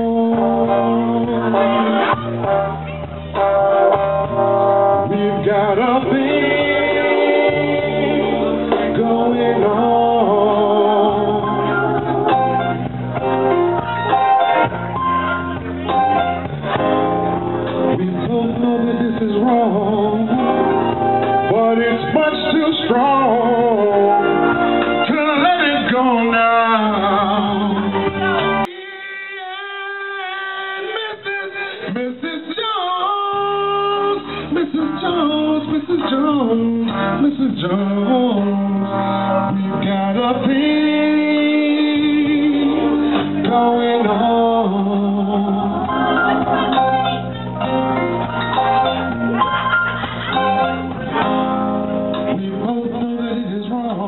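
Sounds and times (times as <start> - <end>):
man singing into a microphone: 0.0 - 2.5, 4.8 - 12.6, 17.8 - 46.9, 52.2 - 54.0
backing music with guitar: 0.0 - 54.0.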